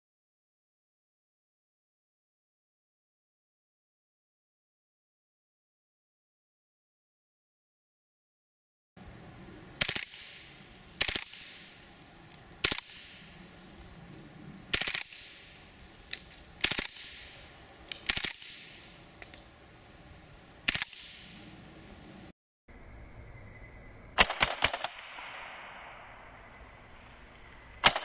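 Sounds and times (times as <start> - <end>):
machine pistol bursts: 11.0 - 11.5, 14.7 - 15.4, 16.1 - 17.2, 17.8 - 18.6, 20.7 - 21.1
single gunshots: 24.2 - 26.1.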